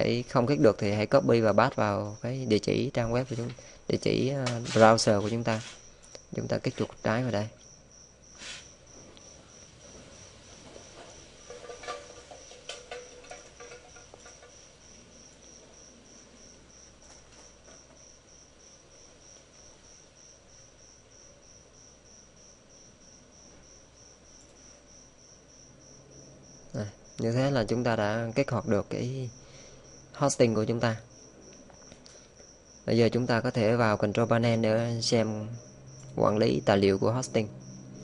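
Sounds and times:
cricket chirping: 0.0 - 38.0
faint clicks and knocks: 9.0 - 14.7.

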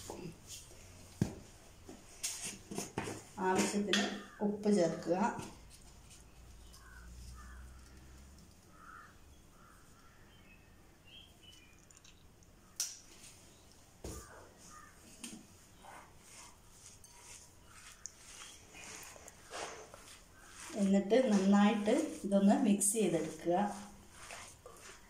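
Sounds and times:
faint bird calls: 6.6 - 11.8, 14.1 - 15.1.

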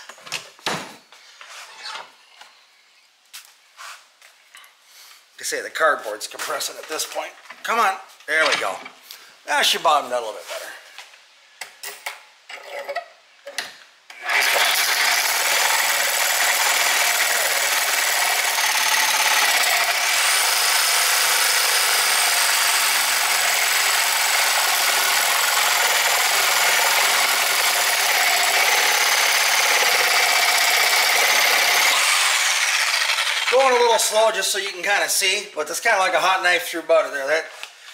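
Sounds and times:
reciprocating saw cutting steel: 14.2 - 34.2.

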